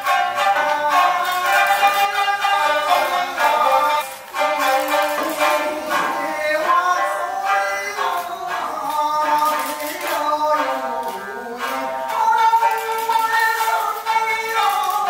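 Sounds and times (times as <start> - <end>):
person singing melody: 0.0 - 15.0
steady musical accompaniment: 0.0 - 15.0.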